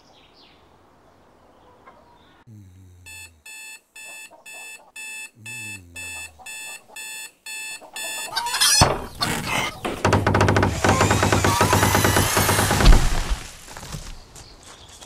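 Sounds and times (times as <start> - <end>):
alarm clock beeping: 3.1 - 8.8.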